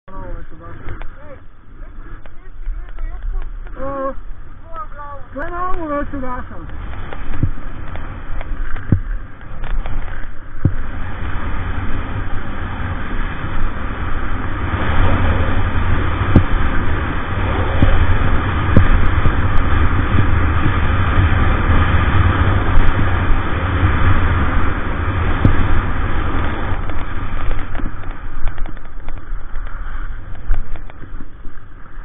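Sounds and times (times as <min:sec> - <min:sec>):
wind buffeting microphone: 0:00.1 - 0:32.0
faint clicks: 0:02.1 - 0:03.8, 0:26.4 - 0:31.7
skis hissing over packed snow: 0:29.2 - 0:32.0.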